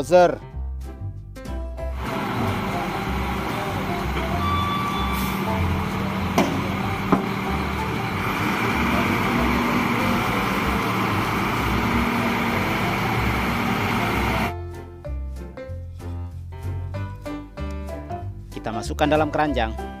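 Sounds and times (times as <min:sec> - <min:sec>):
wheel loader diesel engine running: 0:01.9 - 0:14.5
sharp knocks: 0:06.3 - 0:07.4.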